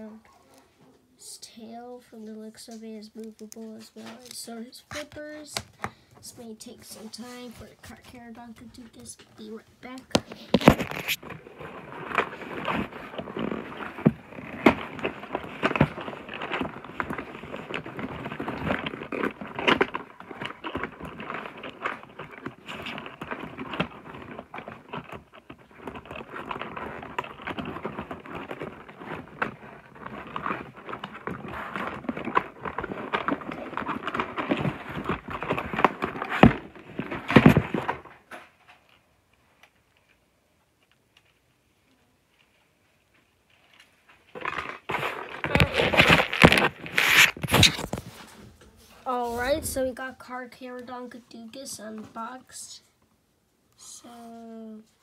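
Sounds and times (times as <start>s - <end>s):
packaging rustling and crackling: 6.8s - 40.2s, 42.2s - 50.0s.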